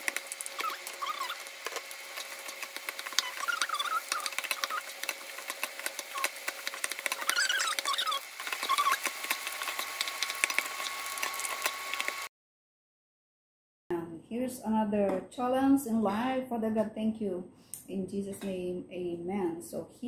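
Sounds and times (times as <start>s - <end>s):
light sizzle: 0.0s - 12.3s
short squeaks: 7.2s - 9.0s.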